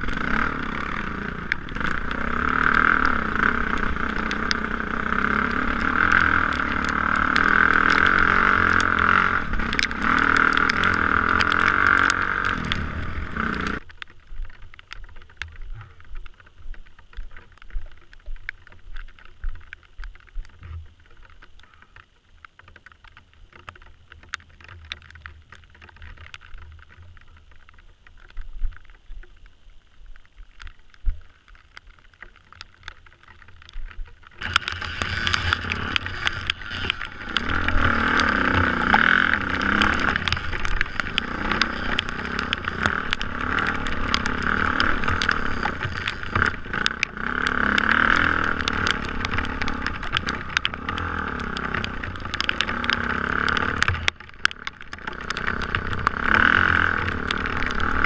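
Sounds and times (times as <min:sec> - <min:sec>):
dirt bike engine revving: 0:00.0 - 0:13.8, 0:34.4 - 0:54.0, 0:55.0 - 0:58.0.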